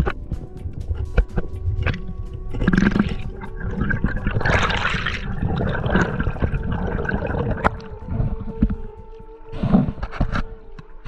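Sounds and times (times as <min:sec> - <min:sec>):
water rushing and bubbling underwater: 0:00.0 - 0:11.0
gush of water: 0:02.5 - 0:08.3.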